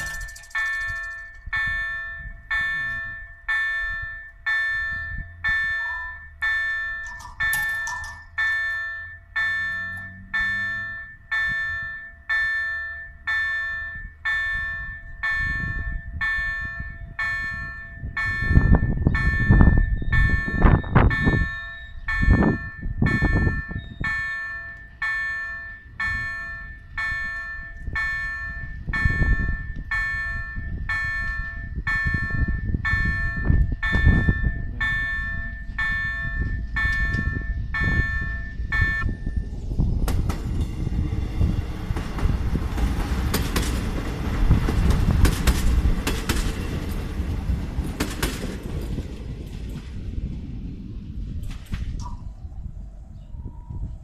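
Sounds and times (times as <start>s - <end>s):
level crossing bell ringing: 0.0s - 39.3s
low rumbling noise: 0.0s - 54.0s.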